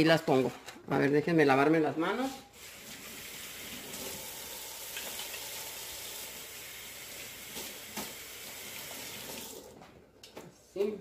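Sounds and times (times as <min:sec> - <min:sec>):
tap water running: 0:02.5 - 0:09.8.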